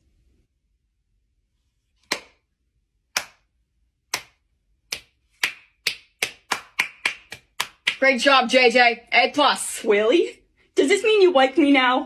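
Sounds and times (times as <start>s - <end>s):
slow hand clapping: 2.0s - 2.4s, 3.1s - 3.5s, 4.1s - 8.0s.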